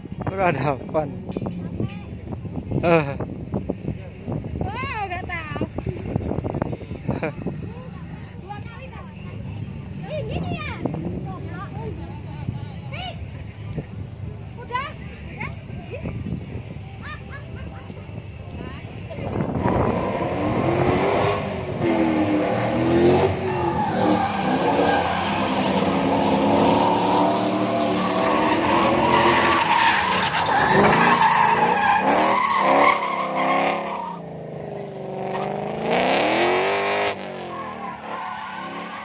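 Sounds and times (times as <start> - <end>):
car engine revving: 19.2 - 39.0
tyres squealing: 23.4 - 34.3.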